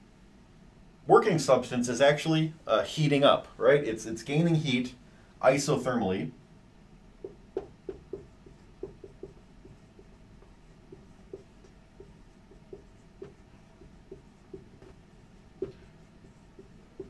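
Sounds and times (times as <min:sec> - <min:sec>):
marker squeaking on whiteboard: 0:07.2 - 0:17.0.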